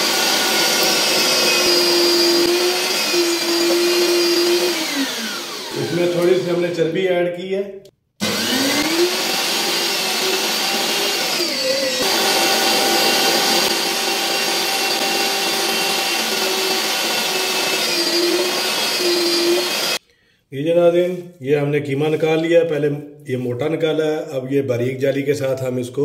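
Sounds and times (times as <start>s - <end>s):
electric meat grinder running: 0.0s - 6.5s, 8.2s - 20.0s.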